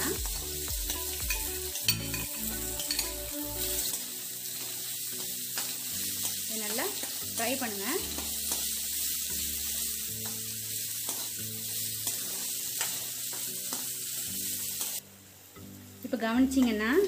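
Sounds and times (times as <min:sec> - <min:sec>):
potatoes sizzling in hot oil: 0:00.0 - 0:17.0
metal spatula scraping a pan: 0:01.3 - 0:04.0, 0:04.6 - 0:07.2.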